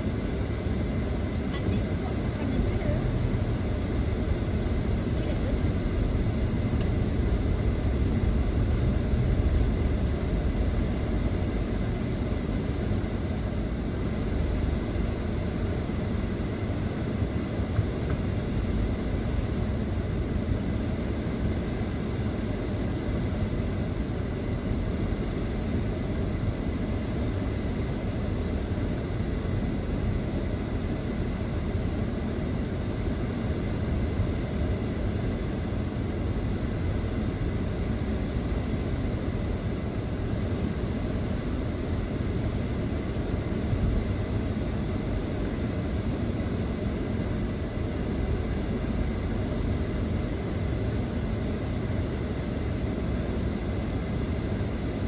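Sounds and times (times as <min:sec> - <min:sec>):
car engine rumble: 0:00.0 - 0:41.0.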